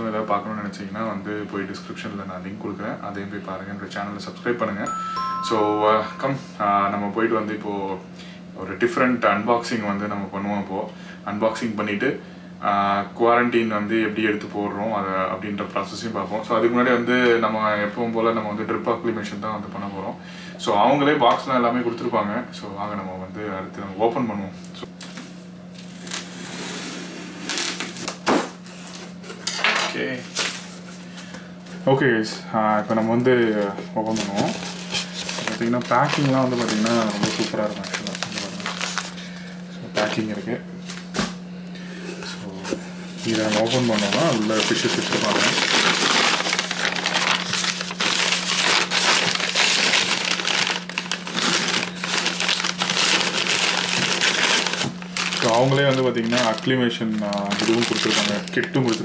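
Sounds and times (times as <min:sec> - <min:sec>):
low steady hum: 0:00.0 - 0:26.3
steady low hum: 0:00.0 - 0:59.0
packing paper crinkling: 0:34.0 - 0:40.2, 0:43.2 - 0:59.0.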